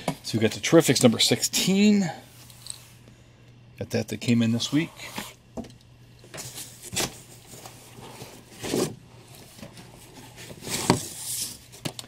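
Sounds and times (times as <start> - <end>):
steady low hum: 0.0 - 12.0
comic books rustling in box: 6.3 - 12.0.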